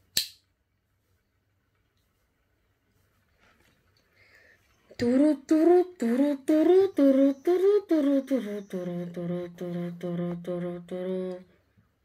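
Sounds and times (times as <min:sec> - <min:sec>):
person humming a tune: 0:04.9 - 0:11.6.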